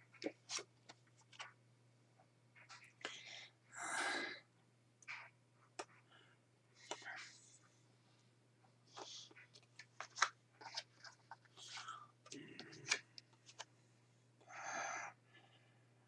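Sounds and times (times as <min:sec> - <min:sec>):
flashcards clicking and rustling: 0:00.2 - 0:01.6, 0:08.9 - 0:13.7.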